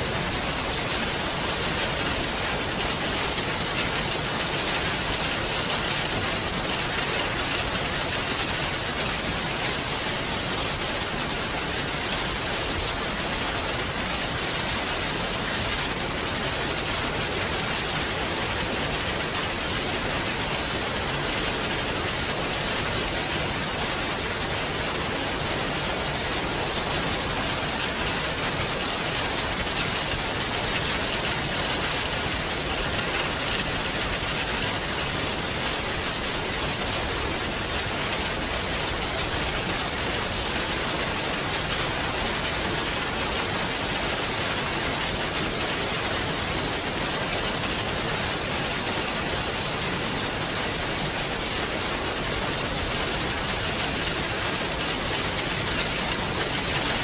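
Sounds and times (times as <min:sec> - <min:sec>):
steady rain: 0:00.0 - 0:57.0.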